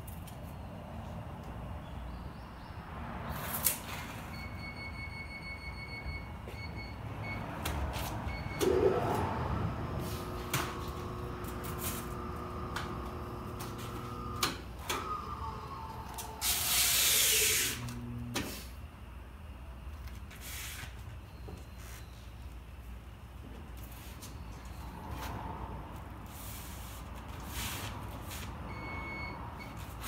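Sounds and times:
wheel balancer whining: 0:07.9 - 0:18.7
loud hiss: 0:16.4 - 0:17.8.

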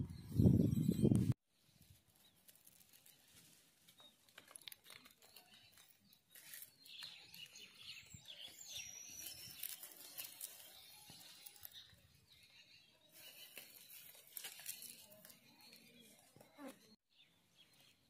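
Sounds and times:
small rustles and clicks: 0:02.0 - 0:07.6, 0:13.2 - 0:16.5
faint bird chirps: 0:05.0 - 0:18.0.

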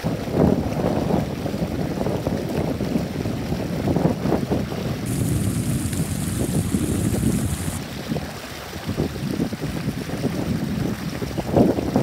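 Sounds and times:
stream rushing over rocks: 0:05.1 - 0:10.6.

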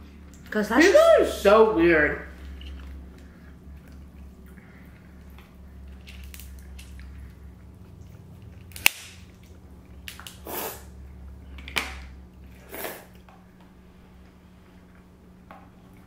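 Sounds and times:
crab shell cracking: 0:05.3 - 0:10.4
slurping noodles: 0:10.4 - 0:11.0, 0:12.5 - 0:13.2.

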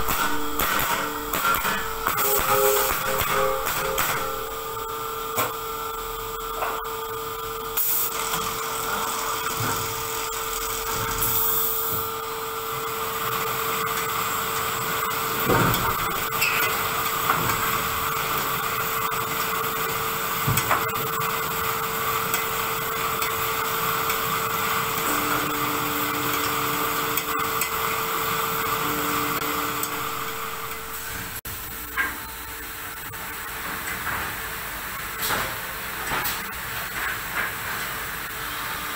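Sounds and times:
machine hum: 0:00.0 - 0:11.2, 0:12.1 - 0:33.7
lower machine hum: 0:00.0 - 0:13.0, 0:21.5 - 0:33.4.

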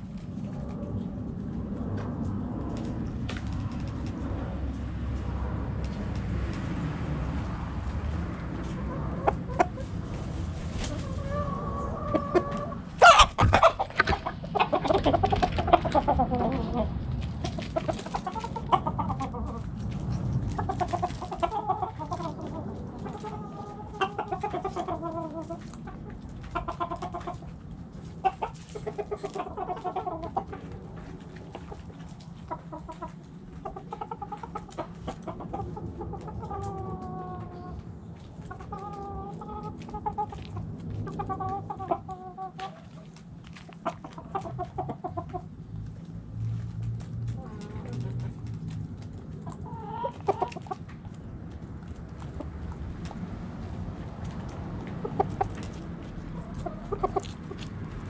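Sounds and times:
hens clucking: 0:08.3 - 0:58.0
rooster crowing: 0:11.2 - 0:13.8.

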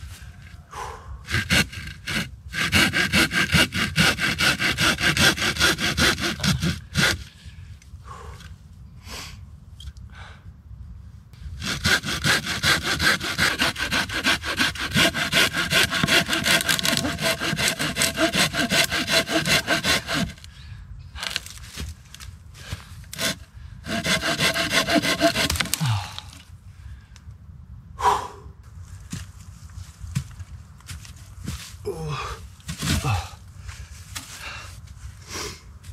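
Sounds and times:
hand saw cutting log: 0:01.3 - 0:07.2, 0:11.6 - 0:20.4, 0:23.1 - 0:26.0.

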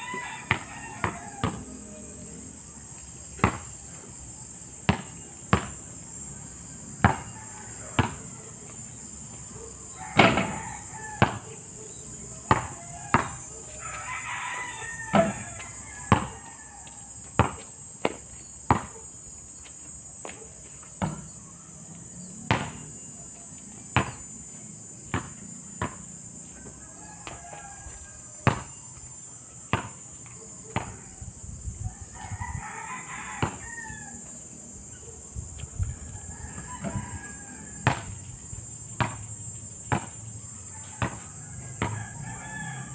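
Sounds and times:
basketball bouncing on asphalt: 0:00.0 - 0:01.8, 0:03.4 - 0:03.8, 0:04.8 - 0:06.0, 0:07.0 - 0:08.4, 0:10.0 - 0:11.7, 0:12.4 - 0:13.6, 0:15.0 - 0:19.0, 0:20.2 - 0:21.4, 0:22.5 - 0:22.9, 0:23.9 - 0:24.3, 0:25.1 - 0:28.8, 0:29.7 - 0:30.0, 0:30.7 - 0:31.2, 0:33.3 - 0:33.9, 0:36.4 - 0:42.1
rooster crowing: 0:00.0 - 0:02.2, 0:05.5 - 0:08.9, 0:09.5 - 0:17.5, 0:26.4 - 0:28.8, 0:30.8 - 0:39.1, 0:40.5 - 0:42.9
insects buzzing: 0:00.0 - 0:42.9.

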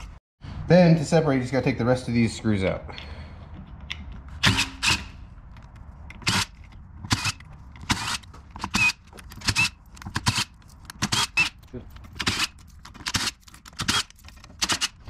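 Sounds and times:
impact driver bursts: 0:04.4 - 0:05.2, 0:07.1 - 0:11.6.

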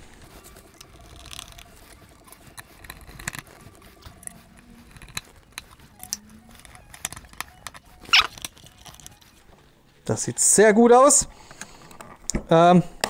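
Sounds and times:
screws clicking on plastic: 0:00.7 - 0:09.2.

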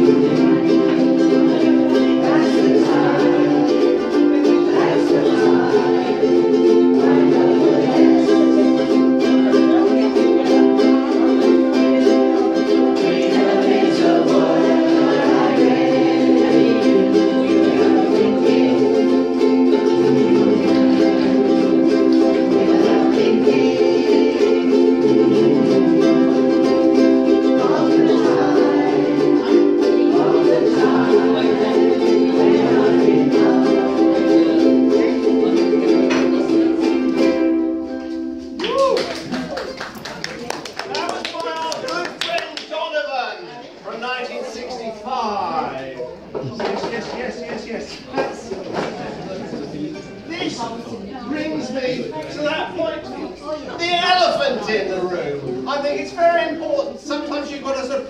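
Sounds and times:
people singing: 0:00.0 - 0:37.7
ukuleles strumming: 0:00.0 - 0:42.8, 0:46.0 - 0:58.0.

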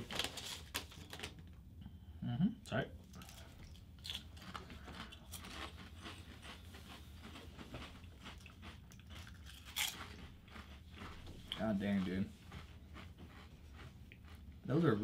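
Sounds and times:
people chewing potato chips: 0:03.0 - 0:15.0.

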